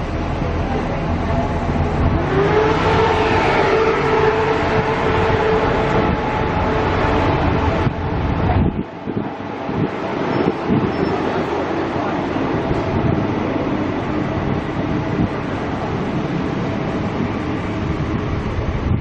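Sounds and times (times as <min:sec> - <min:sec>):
train wheels rumbling on track: 0:00.0 - 0:19.0
traction motor whine: 0:01.0 - 0:09.2.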